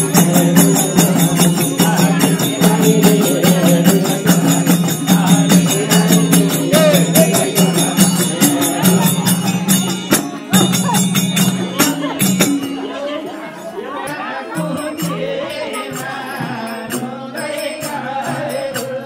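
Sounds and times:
group singing devotional song: 0.0s - 9.6s, 14.0s - 19.0s
hand cymbals beating: 0.0s - 19.0s.

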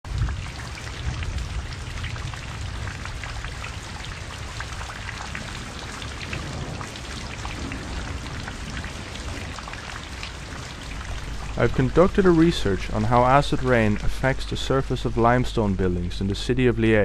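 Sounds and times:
steady rain falling: 0.0s - 17.0s
low rumble: 10.5s - 17.0s.

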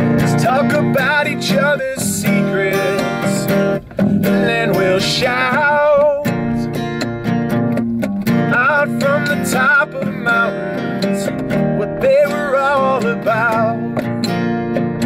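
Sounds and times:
electric bass guitar: 0.0s - 15.0s
strummed acoustic guitar: 0.0s - 15.0s
person singing: 0.2s - 3.5s, 8.5s - 14.0s.

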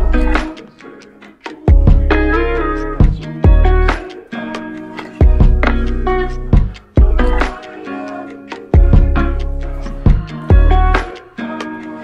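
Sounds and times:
plucked melody over bass beats: 0.0s - 0.6s, 1.7s - 4.1s, 5.2s - 7.6s, 8.8s - 11.2s.

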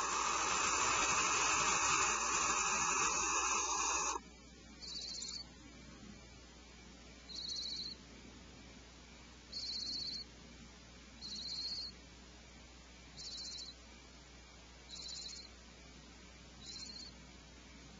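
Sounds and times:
owl nestlings rasping calls: 0.0s - 4.2s, 4.8s - 5.4s, 7.3s - 8.0s, 9.5s - 10.2s, 11.2s - 11.9s, 13.2s - 13.7s, 14.9s - 15.5s, 16.6s - 17.1s
faint steady hum: 0.0s - 17.9s.

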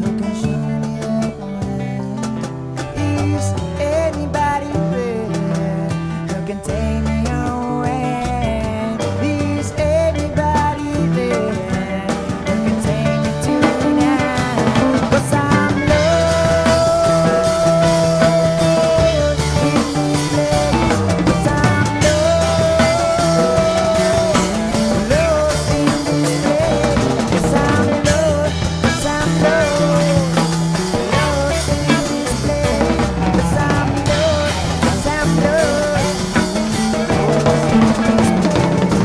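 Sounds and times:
rock music with drums and bass: 0.0s - 39.0s.

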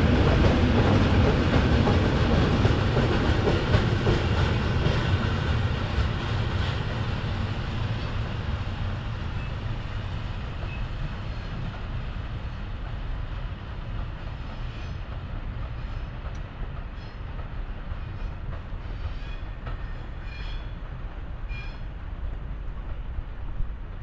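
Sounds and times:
train rumbling on rails: 0.0s - 24.0s.

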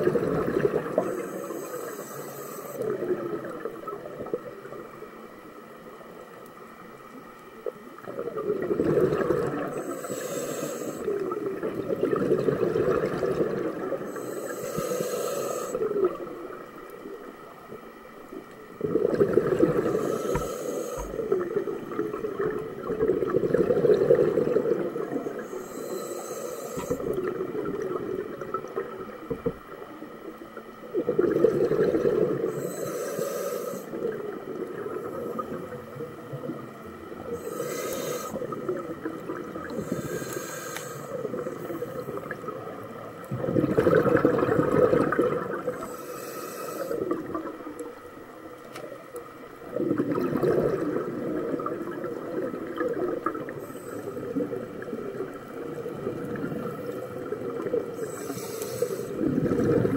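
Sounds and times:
bubbling exhalations: 0.0s - 1.2s, 8.0s - 9.8s, 11.0s - 14.1s, 18.8s - 25.5s, 30.9s - 32.6s, 43.3s - 45.9s, 49.7s - 53.7s, 59.2s - 59.9s
regulator hissing inhalations: 1.0s - 2.9s, 9.8s - 11.3s, 14.0s - 16.0s, 19.8s - 21.4s, 25.3s - 27.1s, 32.5s - 34.1s, 37.2s - 38.6s, 39.7s - 42.2s, 45.8s - 47.1s, 53.5s - 54.4s, 58.0s - 59.2s.

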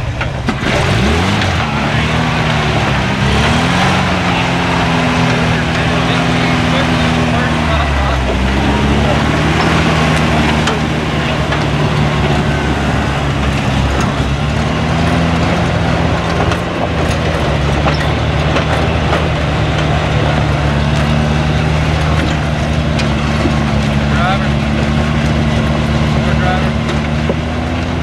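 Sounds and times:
engine running at low revs: 0.0s - 28.0s
sharp clicks and knocks: 8.1s - 28.0s.

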